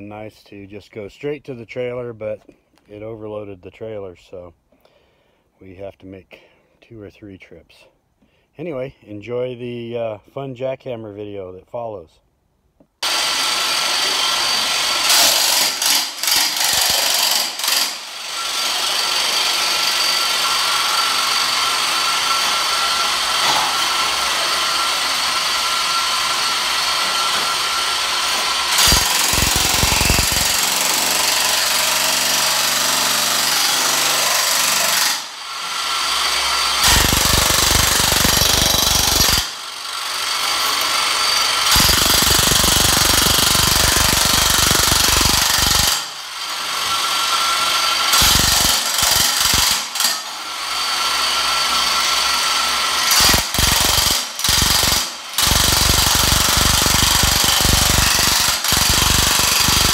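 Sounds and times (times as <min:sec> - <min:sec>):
demolition hammer chipping tile: 0:13.0 - 0:59.9.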